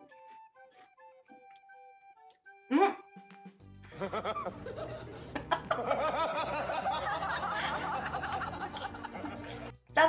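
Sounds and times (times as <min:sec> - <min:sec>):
woman laughing: 0:03.9 - 0:09.6.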